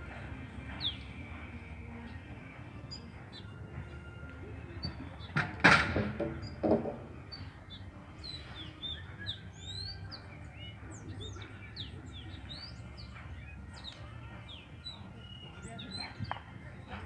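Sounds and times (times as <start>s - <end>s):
small birds chirping: 0.1s - 5.4s, 6.2s - 17.0s.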